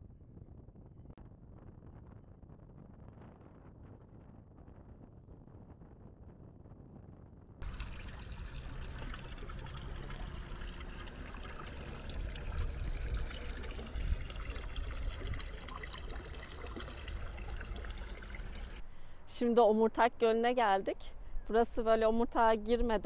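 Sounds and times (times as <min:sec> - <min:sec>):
water trickling into trough: 0:07.6 - 0:18.8.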